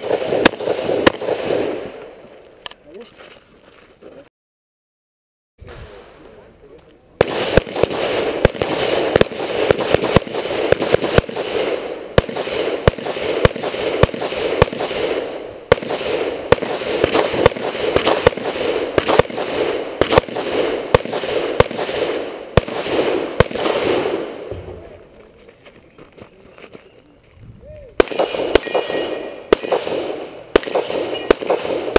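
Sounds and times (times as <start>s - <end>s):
gunshots: 0.0s - 2.3s, 7.2s - 25.0s, 28.0s - 31.9s.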